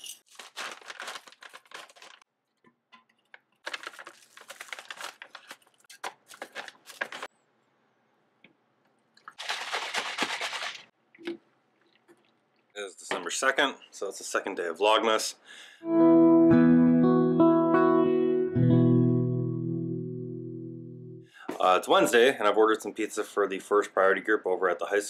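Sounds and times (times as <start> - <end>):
plastic pouch crinkling: 0.2 - 2.3, 3.2 - 7.3, 9.2 - 10.9.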